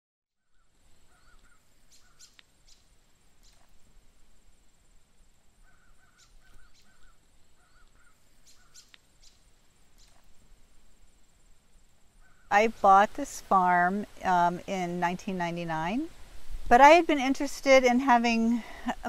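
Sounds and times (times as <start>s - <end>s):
sharp bird chirps: 0.4s - 3.8s, 5.6s - 10.3s
birds calling: 0.4s - 3.9s, 5.5s - 10.4s, 12.2s - 12.5s.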